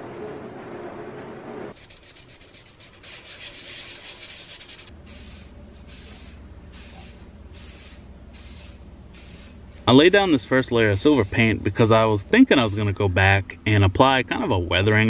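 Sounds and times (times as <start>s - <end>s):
scratchy rubbing noise: 1.8s - 4.9s
aerosol spray can hissing: 4.1s - 9.6s.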